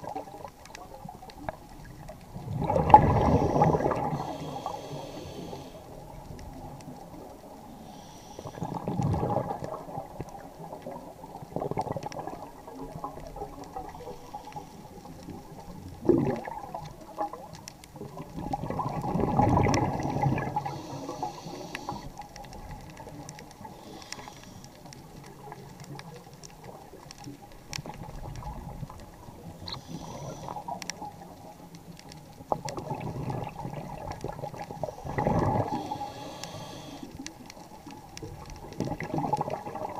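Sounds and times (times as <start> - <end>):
exhaled air bubbling underwater: 0.0 - 39.9
faint clicks: 0.0 - 39.9
regulator inhalation hiss: 3.1 - 6.0, 7.7 - 8.8, 20.0 - 22.1, 23.6 - 24.8, 29.6 - 30.7, 35.0 - 37.2.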